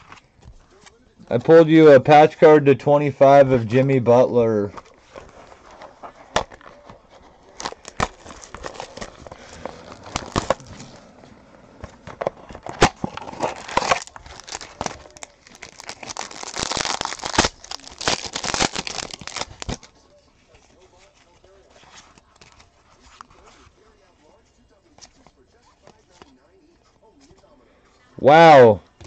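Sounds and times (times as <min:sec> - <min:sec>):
foil wrapper crinkling: 0:03.3 - 0:11.0, 0:11.8 - 0:20.0.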